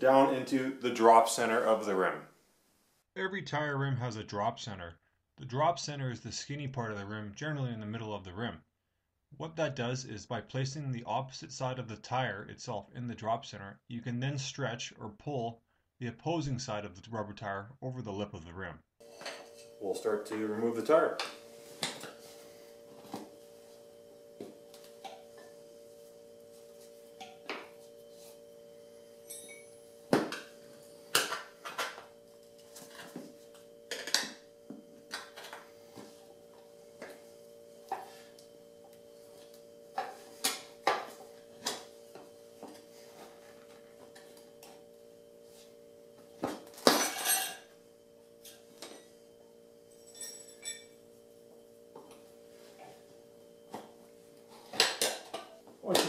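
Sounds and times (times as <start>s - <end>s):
short metallic ring: 29.2s - 29.8s, 50.0s - 51.0s.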